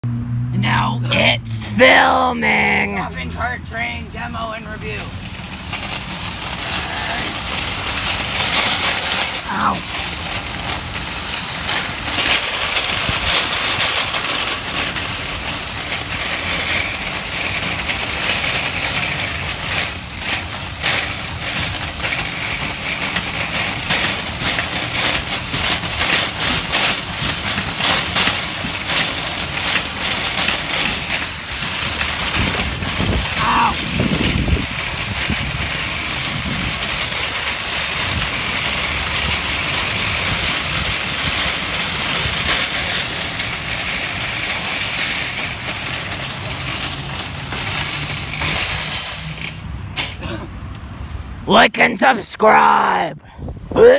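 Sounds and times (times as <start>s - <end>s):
metal baskets rattling: 3.0s - 51.1s
cart wheels rumbling on asphalt: 3.0s - 51.4s.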